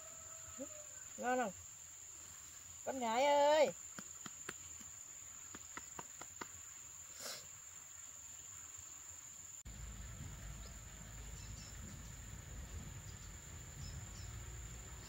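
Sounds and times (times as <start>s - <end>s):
insects droning: 0.0s - 15.0s
low rumbling background noise: 9.7s - 15.0s.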